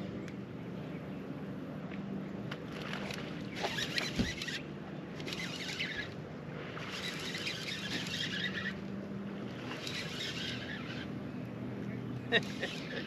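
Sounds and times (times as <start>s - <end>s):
fishing reel cranking: 3.6s - 4.6s, 5.2s - 6.2s, 6.9s - 8.9s, 9.7s - 11.1s, 12.4s - 13.0s.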